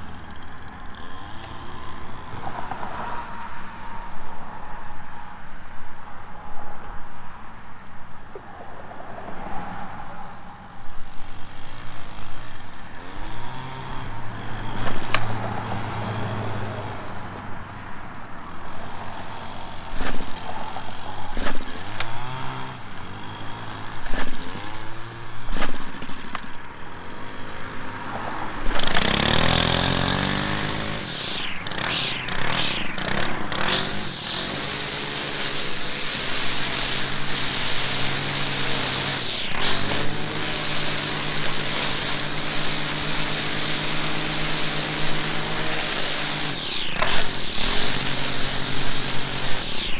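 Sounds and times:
string trimmer engine revving: 0:00.0 - 0:02.6, 0:11.2 - 0:17.4, 0:18.4 - 0:49.9
loud steady rushing noise: 0:27.1 - 0:49.9.

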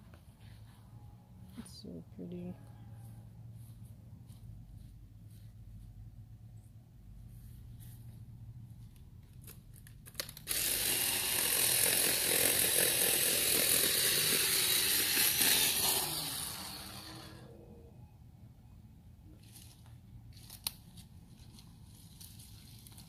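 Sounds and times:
electric chainsaw running: 0:10.3 - 0:17.6.

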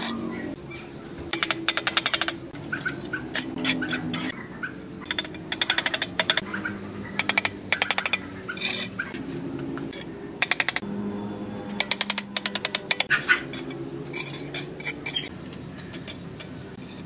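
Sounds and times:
trowel tapping bricks: 0:01.3 - 0:04.3, 0:05.1 - 0:06.5, 0:07.2 - 0:08.9, 0:09.8 - 0:10.8, 0:11.8 - 0:17.0.

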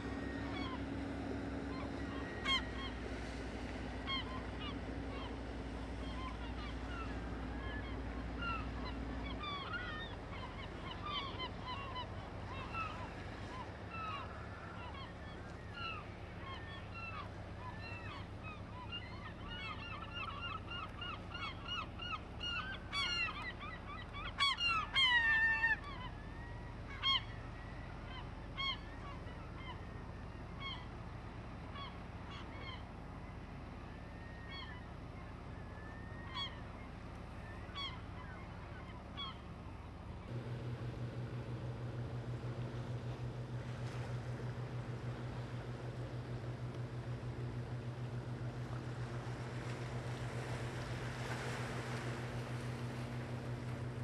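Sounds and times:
birds calling: 0:00.0 - 0:54.0
low engine hum: 0:00.0 - 0:54.0
loud engine running: 0:40.3 - 0:54.0.

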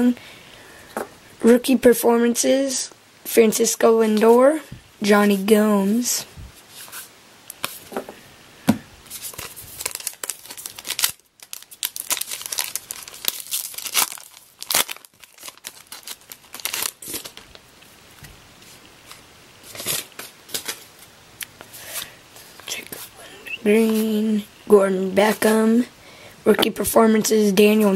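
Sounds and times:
wrapper tearing and crinkling: 0:09.1 - 0:17.6, 0:19.1 - 0:21.1.

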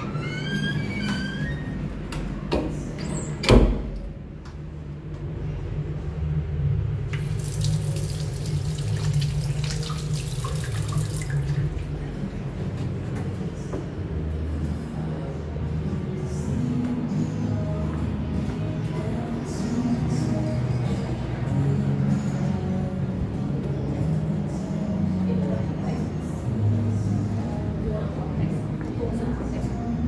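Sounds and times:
door creaking open: 0:00.0 - 0:04.0
tap water running into basin: 0:07.1 - 0:11.9.

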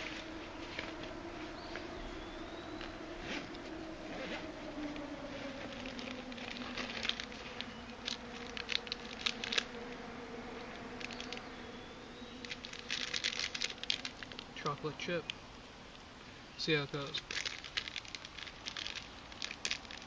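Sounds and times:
flying insect buzzing: 0:00.0 - 0:14.6.

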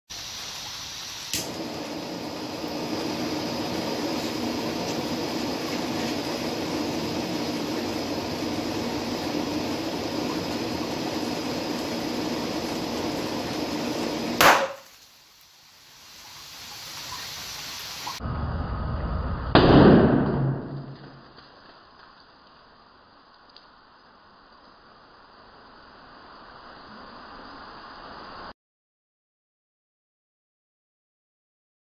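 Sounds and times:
blow torch flame hissing: 0:00.1 - 0:19.3
can bursting open: 0:01.1 - 0:07.4, 0:14.2 - 0:15.1
sharp crack: 0:01.3 - 0:01.8, 0:14.4 - 0:15.0, 0:19.5 - 0:21.7
blow torch igniting click: 0:01.3 - 0:15.0.

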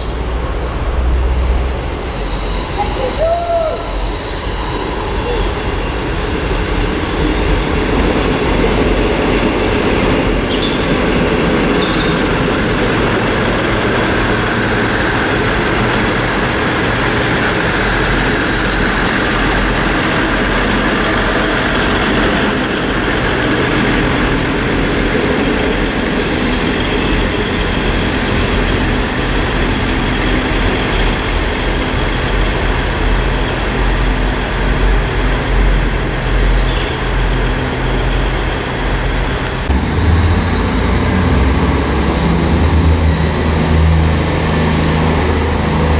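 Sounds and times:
high-pitched wheel squeals: 0:00.0 - 0:06.1
diesel train engines running: 0:00.0 - 0:45.9
wheel and rail noise: 0:00.0 - 0:45.9.

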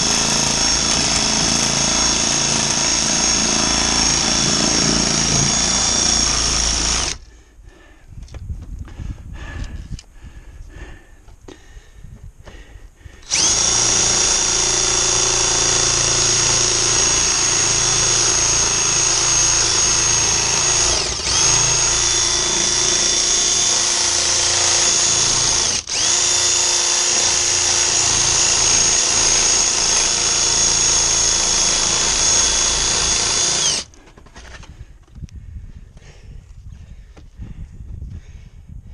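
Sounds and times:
power tool whining cutting metal: 0:00.0 - 0:07.2, 0:13.2 - 0:34.0.

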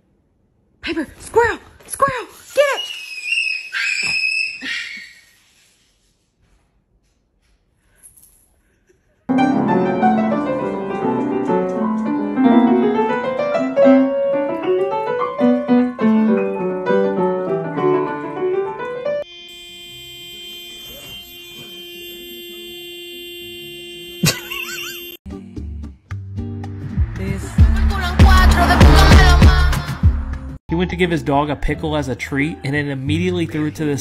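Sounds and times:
held chord tones: 0:09.3 - 0:25.2.

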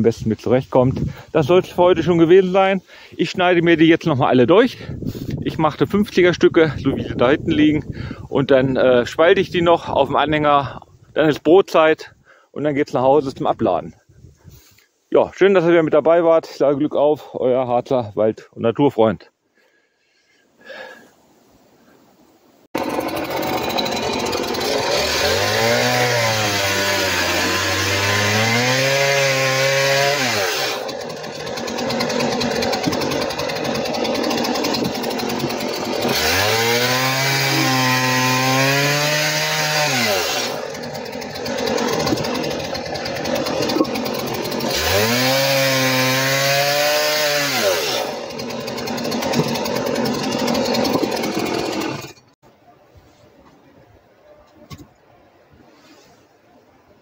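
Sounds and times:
chainsaw cutting logs: 0:22.8 - 0:52.4.

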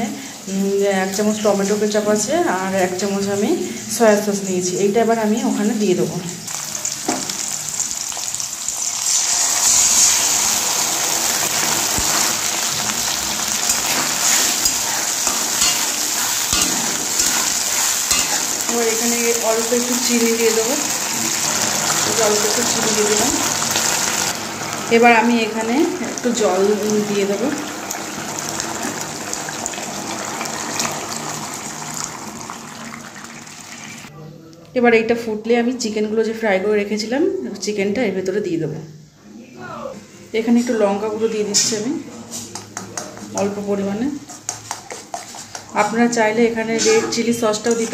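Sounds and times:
vegetables sizzling in a wok: 0:00.0 - 0:34.1, 0:40.1 - 0:47.9
spatula stirring in a wok: 0:08.8 - 0:24.2, 0:42.3 - 0:47.9.

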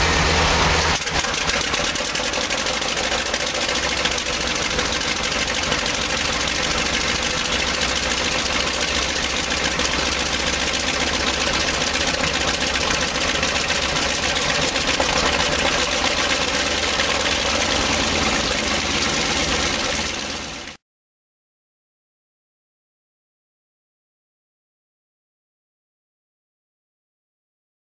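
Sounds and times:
piston aircraft engine idling: 0:00.0 - 0:20.8.

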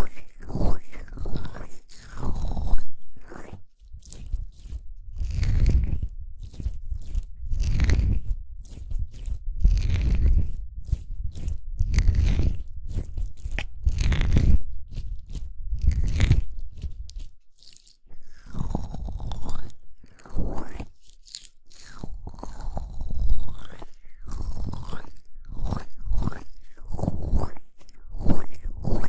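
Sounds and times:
hands rubbing microphone: 0:00.0 - 0:19.6.

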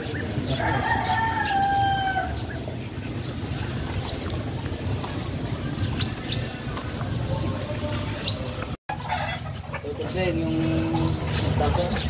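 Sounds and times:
rooster crowing: 0:00.4 - 0:02.6.

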